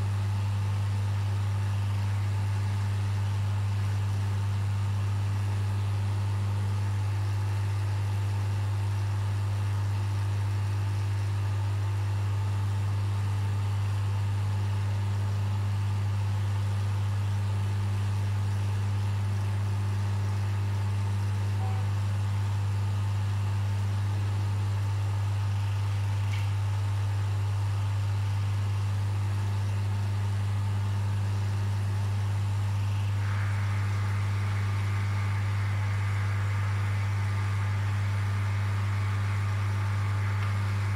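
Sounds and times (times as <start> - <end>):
low electrical hum: 0.0 - 40.9
hiss of moving water: 33.0 - 40.9.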